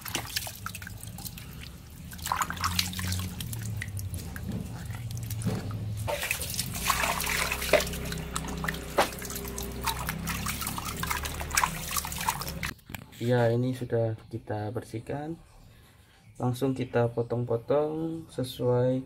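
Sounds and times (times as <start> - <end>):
hands rubbing skin in water: 0.0 - 12.7
water splashing and dripping: 0.0 - 12.7.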